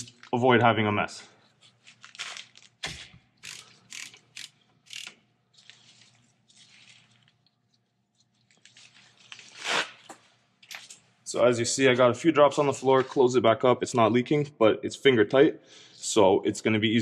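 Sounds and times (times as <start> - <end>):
wrench ratcheting: 3.4 - 5.2.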